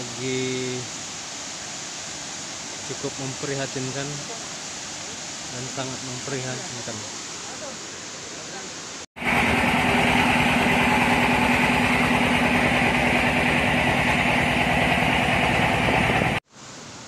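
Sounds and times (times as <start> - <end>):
boat engine droning: 9.2 - 16.4.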